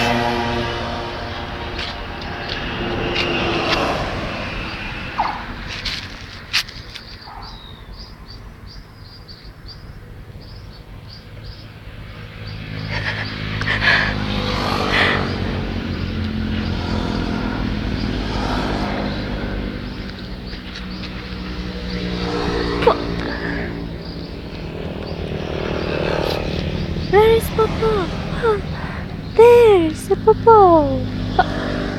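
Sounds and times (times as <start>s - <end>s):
vehicle engine humming: 0.0s - 7.3s, 10.1s - 31.9s
bird chirping: 6.9s - 11.7s.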